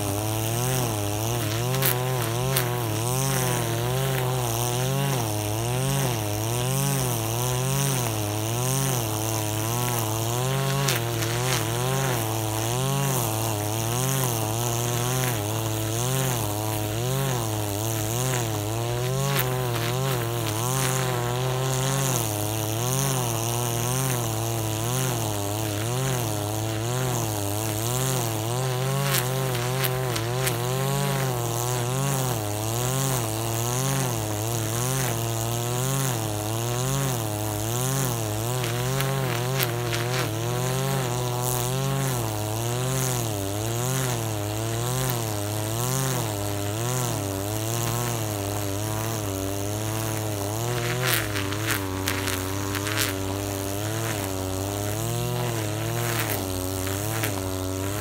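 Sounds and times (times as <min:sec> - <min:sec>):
brush cutter engine cutting grass: 0:00.0 - 0:58.0.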